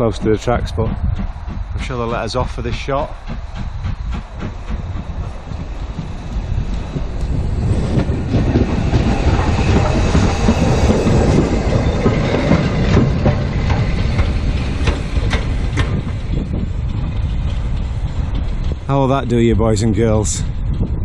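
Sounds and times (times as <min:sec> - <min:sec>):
train wheels rumbling on rail: 0:00.0 - 0:21.0
wheels clicking on track: 0:00.0 - 0:21.0.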